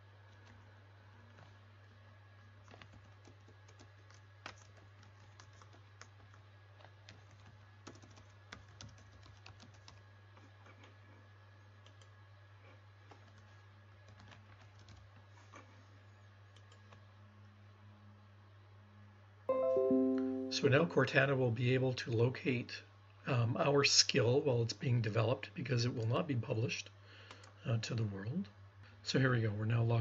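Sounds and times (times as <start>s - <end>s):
keyboard typing: 2.7s - 10.0s, 13.1s - 15.1s.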